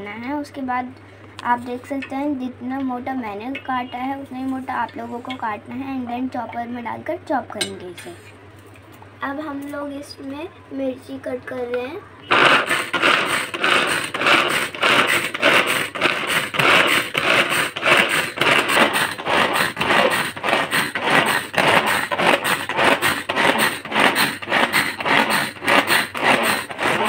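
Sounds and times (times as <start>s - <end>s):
vegetable chopper whirring and chopping: 12.2s - 27.0s.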